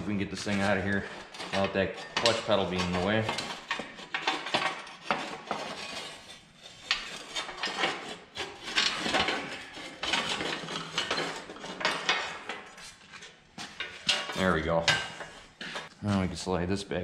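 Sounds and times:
metal panel scraping: 0.0 - 12.9
metal clanks: 0.5 - 6.2, 13.7 - 15.9.

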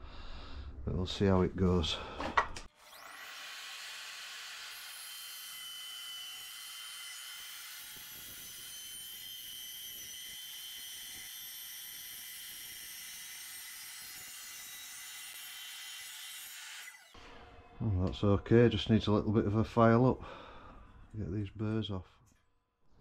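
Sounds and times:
mitre saw whining: 2.6 - 18.7
saw blade cutting metal: 2.7 - 17.6.

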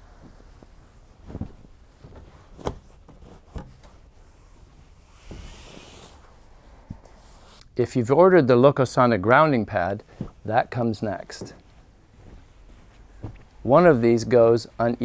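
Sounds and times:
hand brushing across cover: 0.1 - 7.6.

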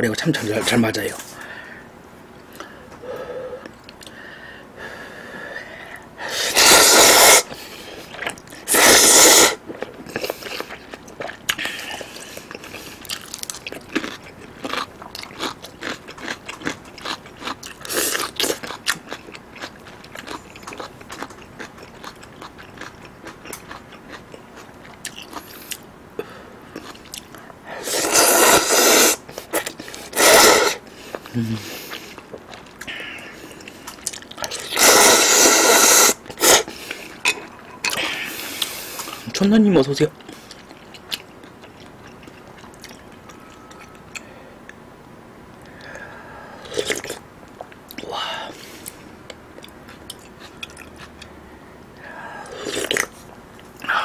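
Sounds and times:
noodle slurping: 6.3 - 10.9, 27.8 - 30.8, 34.5 - 37.2
wet chewing: 7.5 - 39.2, 40.2 - 44.3, 48.7 - 51.3.

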